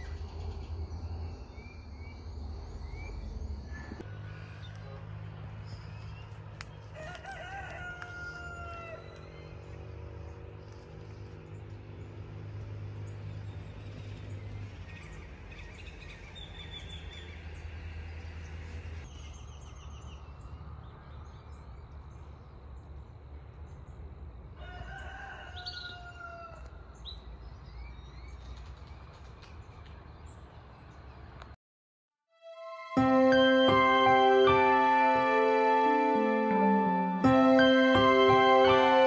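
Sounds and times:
rooster crowing: 0:06.9 - 0:09.2, 0:24.6 - 0:26.7.

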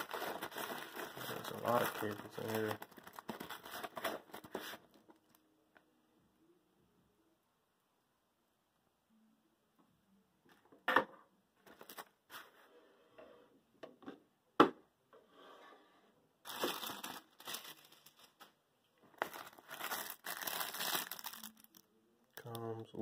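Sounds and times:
plastic wrapping crinkling: 0:00.0 - 0:05.4, 0:16.4 - 0:21.8.

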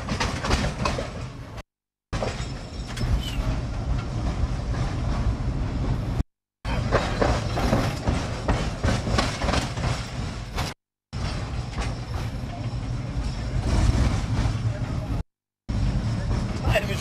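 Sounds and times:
tram rumbling along track: 0:00.0 - 0:01.6, 0:02.2 - 0:17.0
wheels clicking over rails: 0:00.0 - 0:01.6, 0:06.7 - 0:15.1.

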